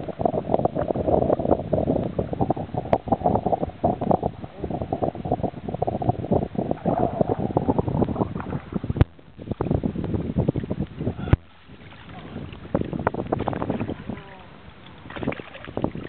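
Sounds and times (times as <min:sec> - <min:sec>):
wind buffeting microphone: 0:00.0 - 0:16.0
fish thrashing in water: 0:11.4 - 0:16.0.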